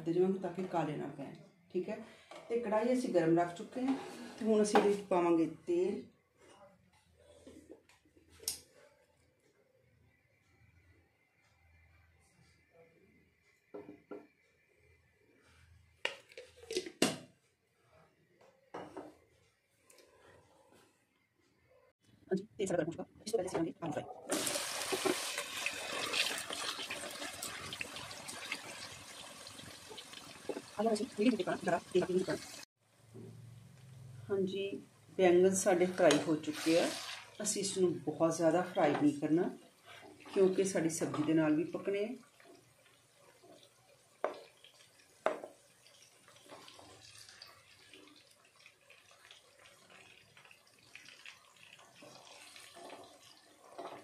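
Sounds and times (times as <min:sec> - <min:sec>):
potatoes sizzling in hot oil: 0:24.3 - 0:32.7, 0:36.1 - 0:37.7, 0:40.4 - 0:54.0
vegetables sizzling in oil: 0:24.3 - 0:32.7, 0:36.0 - 0:37.8
spoon knocking on pan: 0:45.2 - 0:45.6.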